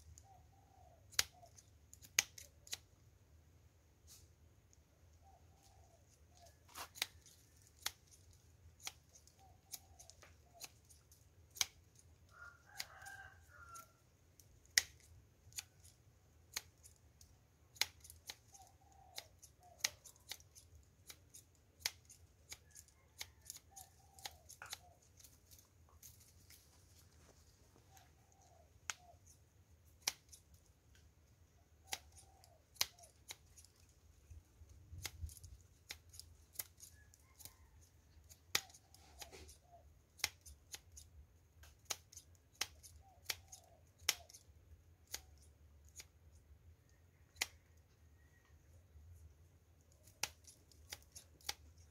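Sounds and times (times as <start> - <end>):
rooster crowing: 12.3 - 14.0.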